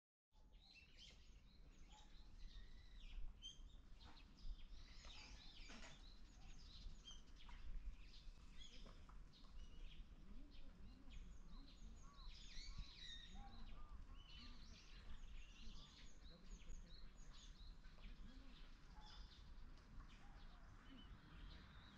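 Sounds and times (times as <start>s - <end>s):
small birds chirping: 0.4s - 21.9s.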